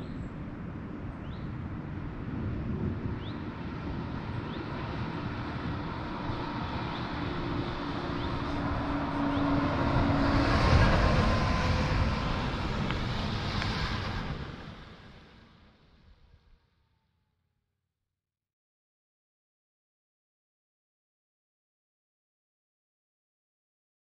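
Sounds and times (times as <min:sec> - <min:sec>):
electric bus driving past: 0:03.3 - 0:16.4.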